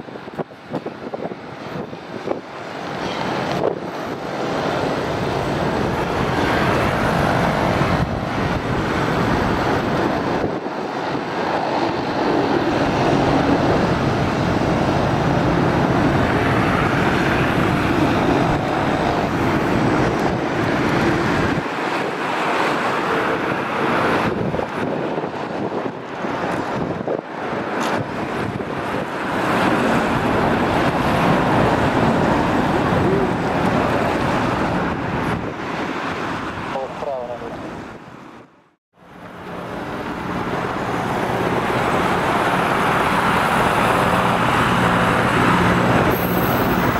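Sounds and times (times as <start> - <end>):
helicopter turbines and rotors droning: 0.0 - 38.1, 39.0 - 46.9
wind buffeting microphone: 0.0 - 46.9.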